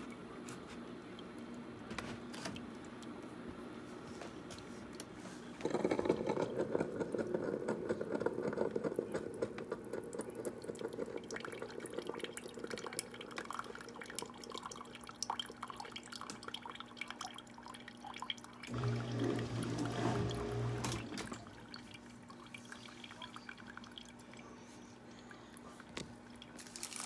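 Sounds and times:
coffee dripping into cup of ice: 5.6s - 18.8s.

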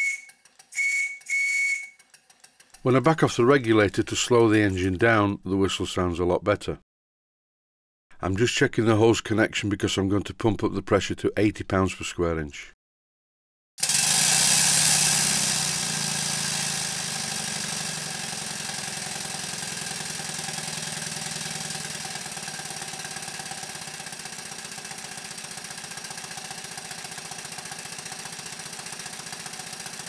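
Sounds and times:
steam engine exhaust puffs: 13.8s - 30.0s.

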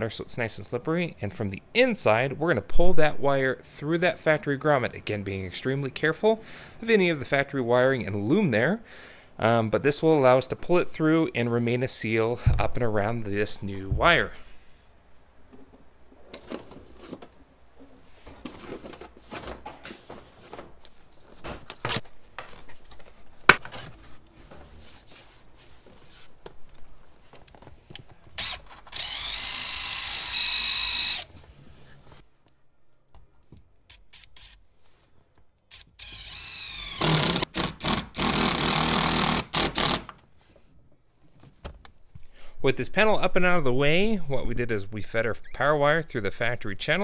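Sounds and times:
power drill whining: 28.4s - 31.3s, 35.7s - 40.1s.

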